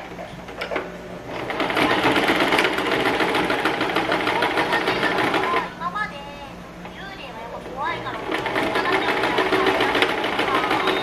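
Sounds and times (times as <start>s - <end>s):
sewing machine stitching: 1.3s - 5.7s, 8.0s - 11.0s
sewing machine clicks: 1.4s - 5.6s.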